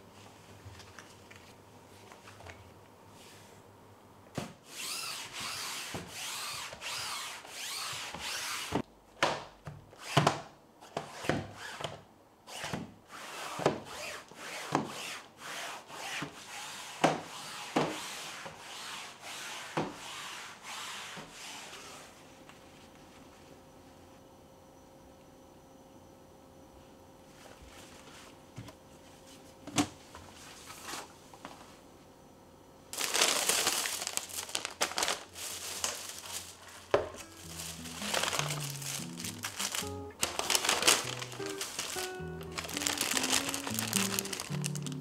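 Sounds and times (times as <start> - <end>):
cloth pad scrubbing wall: 12.5 - 22.4.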